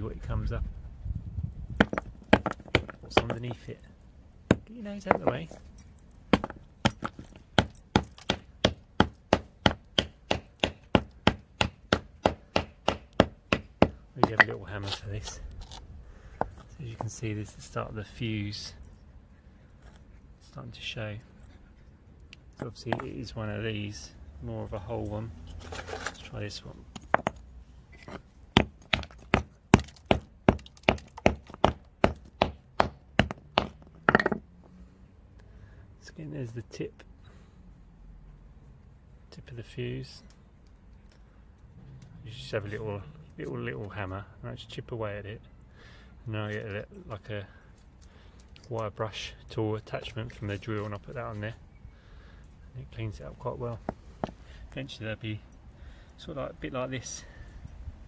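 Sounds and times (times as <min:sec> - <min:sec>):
hammer knocking on corroded metal: 0:04.5 - 0:05.3, 0:06.3 - 0:14.5, 0:28.6 - 0:34.4.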